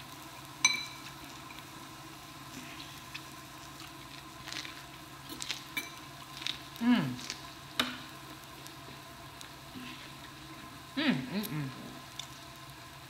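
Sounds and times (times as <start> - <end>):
meat sizzling on grill plate: 0.0 - 13.0
person humming: 6.8 - 7.2, 11.0 - 12.0.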